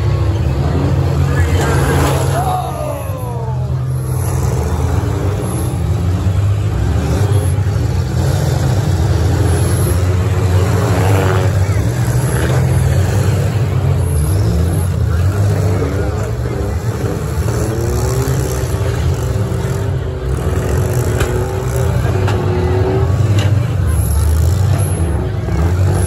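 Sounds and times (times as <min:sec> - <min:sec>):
car engines rumbling and revving: 0:00.0 - 0:26.0.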